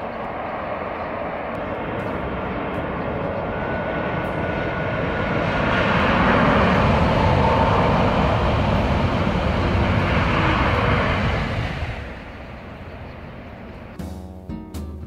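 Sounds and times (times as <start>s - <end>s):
high-speed train passing: 0.0s - 14.2s.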